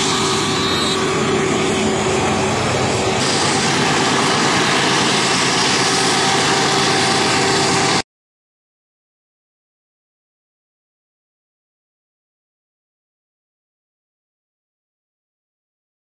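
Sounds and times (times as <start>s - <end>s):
diesel locomotive engine rumble: 0.0s - 8.0s.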